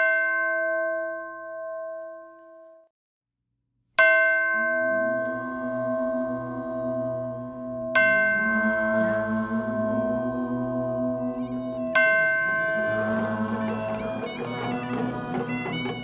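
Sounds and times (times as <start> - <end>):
low wavering drone: 4.6 - 16.0
bell ringing: 11.4 - 16.0.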